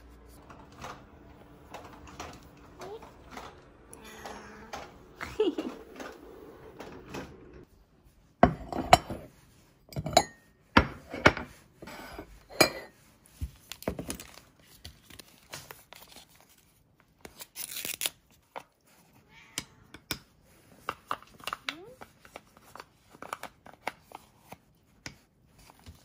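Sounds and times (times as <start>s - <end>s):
ceramic bowls clinking on stone: 9.9s - 11.4s, 12.0s - 12.9s
food pouch tearing open: 17.4s - 18.3s.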